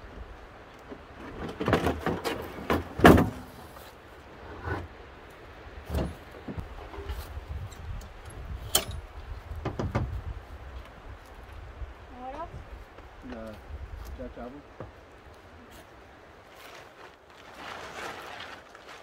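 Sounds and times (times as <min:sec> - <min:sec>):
knocks and clunks: 0:00.9 - 0:03.5, 0:05.8 - 0:07.2, 0:09.6 - 0:10.2.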